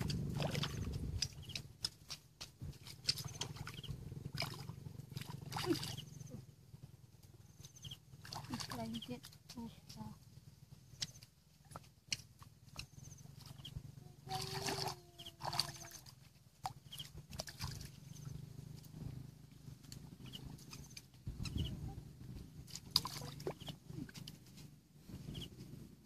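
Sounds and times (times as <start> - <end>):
hands sloshing in muddy water: 0.0 - 6.4, 8.2 - 9.3, 14.3 - 18.3, 22.7 - 24.2
small splashes: 0.0 - 6.4, 8.2 - 9.6, 11.1 - 12.8, 13.4 - 18.3, 22.7 - 24.3.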